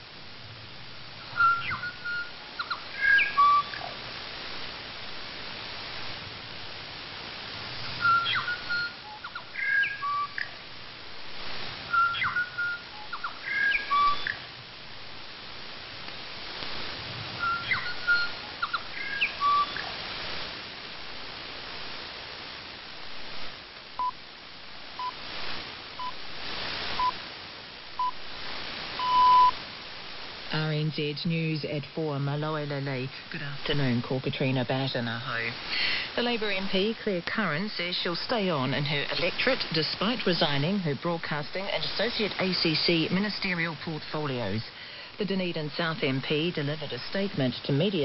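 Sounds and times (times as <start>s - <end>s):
radio static hiss: 0.0s - 48.0s
bird call chiming whistled notes: 1.4s - 3.9s, 8.0s - 10.5s, 11.9s - 14.4s, 17.4s - 19.9s
short beeps: 29.0s - 29.6s.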